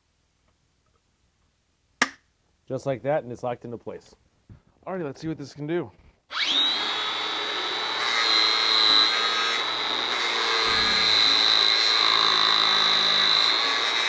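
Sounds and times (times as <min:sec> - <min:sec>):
angle grinder whine: 0:06.3 - 0:14.0
grinding steel tube: 0:07.6 - 0:14.0.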